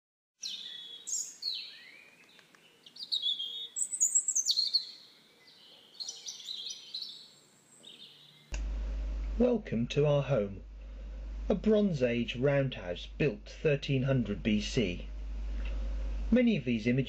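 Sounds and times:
songbird chirping and whistling: 0.4s - 8.5s.

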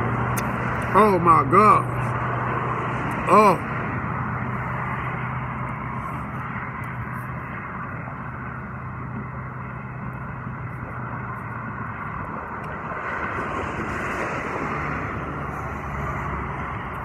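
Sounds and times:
steady traffic hum: 0.0s - 17.0s
vehicle passing: 0.0s - 17.0s.

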